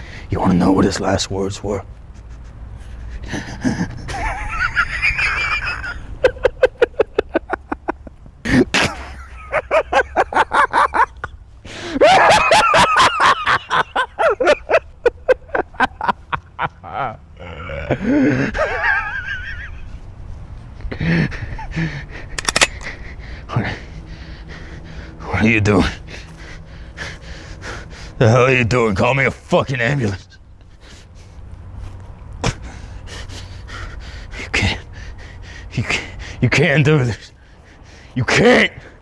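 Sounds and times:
man laughing loudly: 2.1s - 20.0s, 20.9s - 22.6s.

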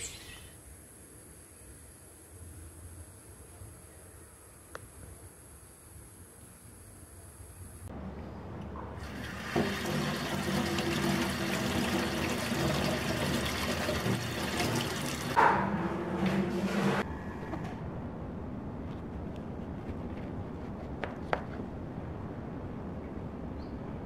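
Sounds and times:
tap water running into sink: 9.0s - 15.4s.

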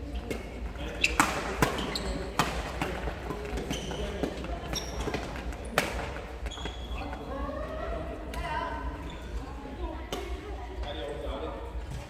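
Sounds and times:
sports shoes squeaking on court: 0.1s - 7.3s, 9.0s - 9.4s
rackets striking shuttlecock: 0.2s - 6.2s.

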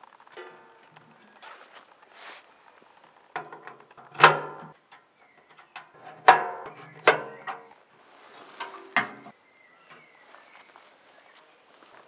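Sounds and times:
metal stove parts clanking: 0.4s - 1.2s, 3.4s - 7.8s, 8.6s - 9.3s.

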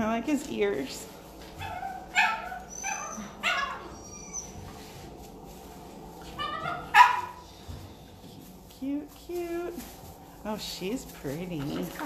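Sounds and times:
puppies yipping: 1.6s - 4.8s, 6.3s - 7.4s.

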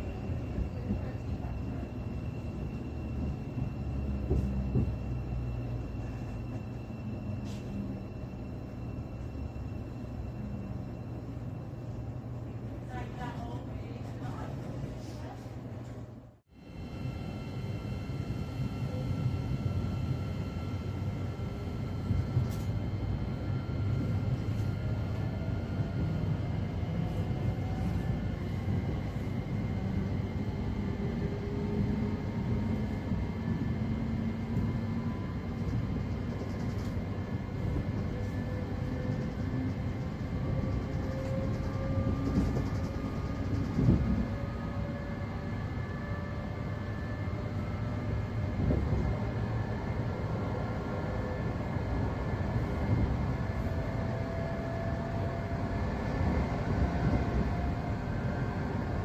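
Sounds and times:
wheels rumbling on rail: 0.0s - 59.0s.

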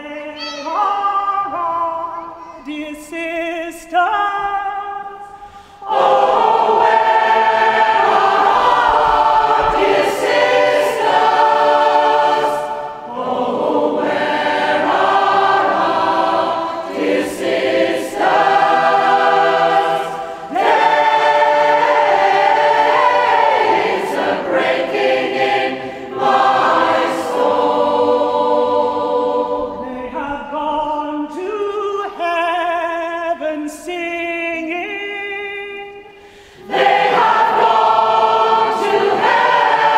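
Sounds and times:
choir singing: 0.0s - 32.3s, 36.6s - 39.9s.

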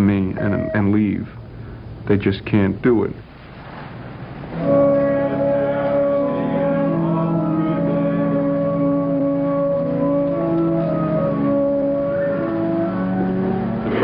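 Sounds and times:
church organ chords: 4.6s - 14.0s.

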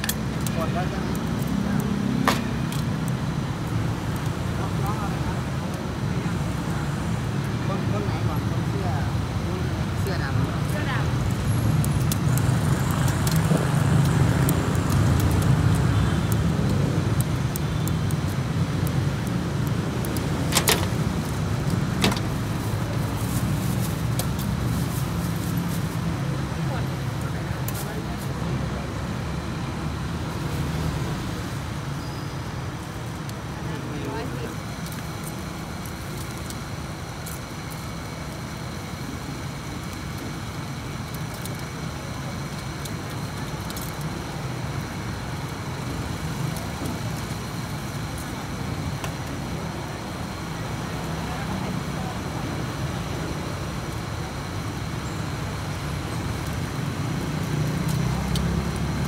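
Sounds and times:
meat crackling over charcoal: 0.0s - 59.0s
road traffic rumble: 0.0s - 59.0s.

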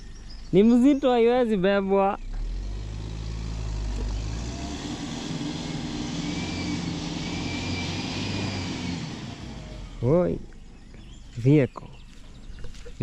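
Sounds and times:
truck engine running: 0.0s - 13.0s.

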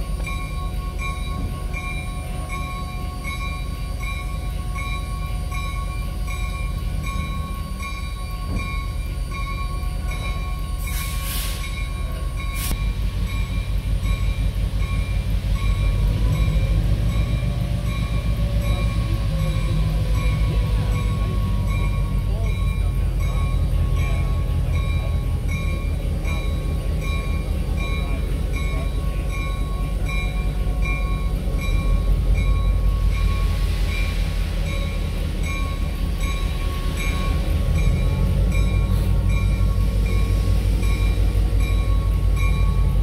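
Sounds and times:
locomotive rumble: 0.0s - 43.0s
steam hissing: 10.4s - 43.0s.

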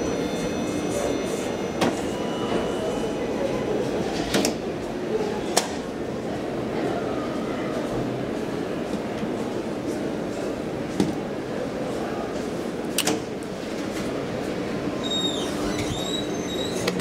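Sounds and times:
high wavering squeal: 0.0s - 3.9s
elevator running hum: 0.0s - 17.0s.

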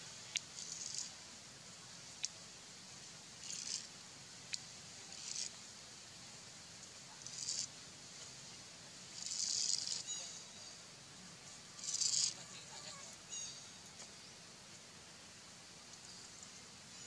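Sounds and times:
faint high bird chirps: 9.4s - 10.8s, 11.8s - 13.8s
high-pitched hissing bursts: 11.7s - 13.4s.

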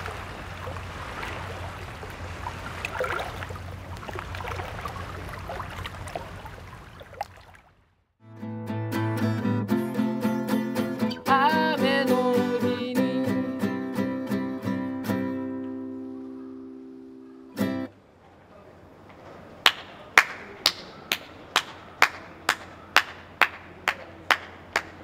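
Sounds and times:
acoustic guitar strumming: 8.2s - 17.9s
person singing: 9.0s - 15.6s.

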